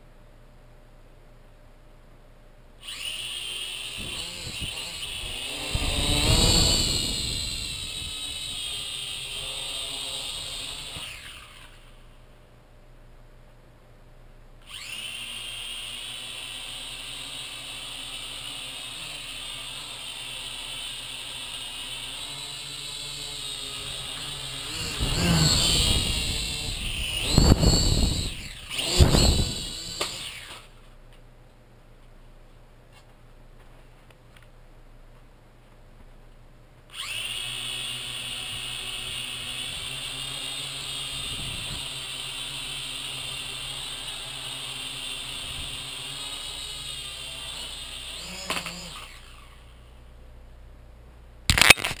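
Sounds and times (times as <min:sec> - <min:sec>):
toy drone motors whining: 0:02.8 - 0:12.1, 0:14.6 - 0:30.8, 0:36.9 - 0:49.8.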